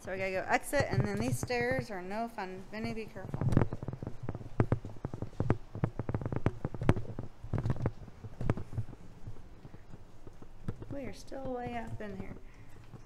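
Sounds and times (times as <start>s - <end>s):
footsteps on metal stairs: 0.4s - 13.0s.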